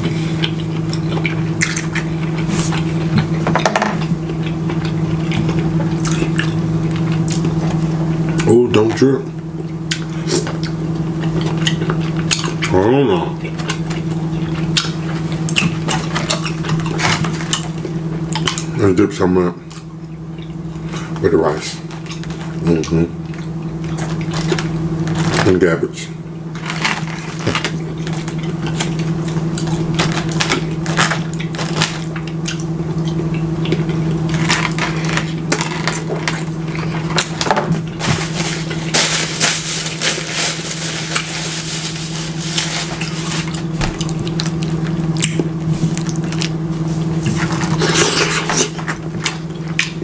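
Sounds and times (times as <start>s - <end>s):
chewing food: 0.0s - 3.4s, 4.0s - 8.9s, 9.6s - 18.9s, 19.6s - 25.6s, 26.5s - 40.2s, 42.4s - 50.0s
steady low hum: 0.0s - 50.0s
paper napkin rustling: 37.8s - 44.4s.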